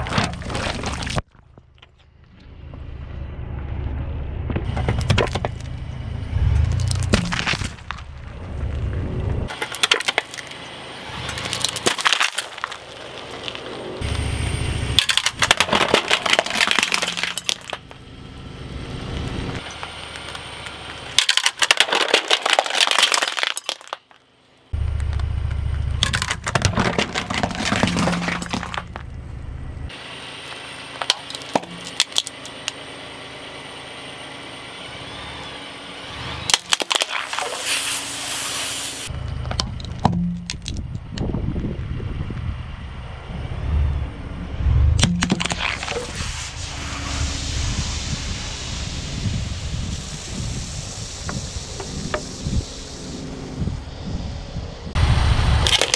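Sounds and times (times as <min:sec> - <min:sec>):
car rumble: 0:00.0 - 0:55.9
glass shattering under tire: 0:06.7 - 0:08.0, 0:09.5 - 0:10.6, 0:11.3 - 0:13.7, 0:15.0 - 0:18.0, 0:19.6 - 0:24.3, 0:26.0 - 0:29.1, 0:31.0 - 0:32.7, 0:36.5 - 0:38.0, 0:45.0 - 0:46.2, 0:55.6 - 0:55.9.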